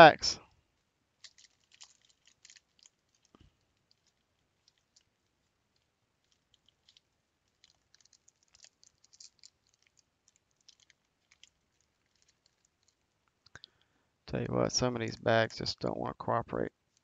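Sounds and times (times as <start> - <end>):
foil wrapper crinkling: 1.2 - 13.0.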